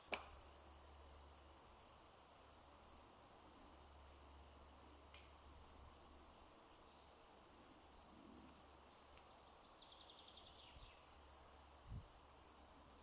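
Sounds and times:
faint bird chirps: 5.5s - 13.0s.

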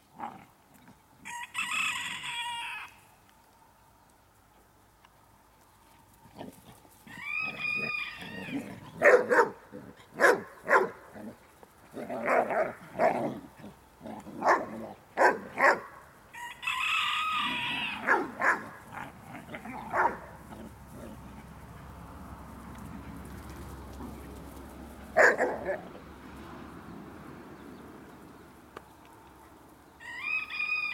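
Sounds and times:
rooster crowing: 1.2s - 3.1s, 7.1s - 8.8s, 16.3s - 18.6s, 30.0s - 30.9s
young dogs barking: 8.4s - 16.0s, 17.9s - 21.6s, 25.0s - 26.0s.

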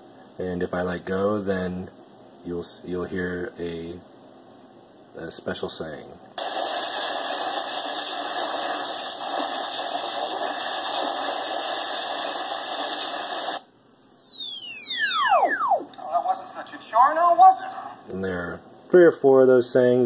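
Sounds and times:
crackling blast sound effect: 6.4s - 15.9s
falling multi-tone whistle: 13.6s - 15.9s.

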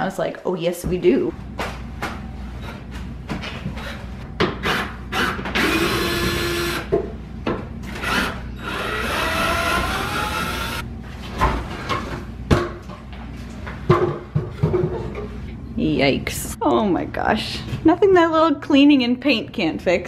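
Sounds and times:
cordless drill whining: 8.0s - 10.8s.

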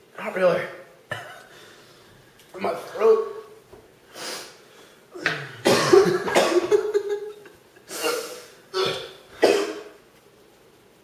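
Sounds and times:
man coughing: 1.1s - 1.5s, 5.2s - 7.2s, 7.9s - 10.0s.

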